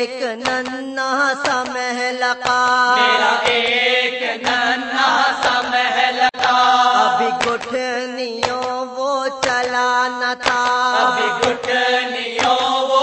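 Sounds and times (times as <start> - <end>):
person chanting an elegy: 2.8 - 13.0
sharp beat: 3.0 - 4.8, 10.4 - 13.0.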